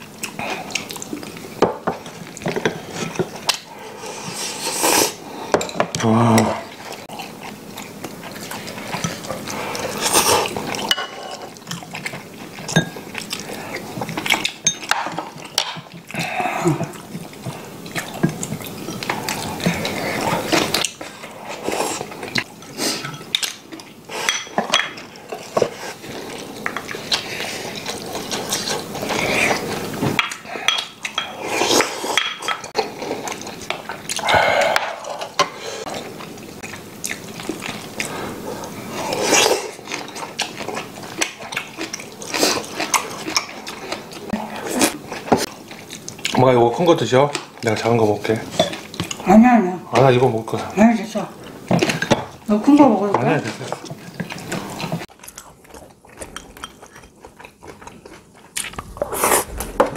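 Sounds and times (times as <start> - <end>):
chewing and slurping: 0.2 - 46.5, 47.3 - 49.3, 51.4 - 59.9
utensils clinking on ceramic bowls: 10.7 - 11.6, 12.6 - 13.0, 14.4 - 15.9, 24.2 - 25.7, 56.2 - 57.5.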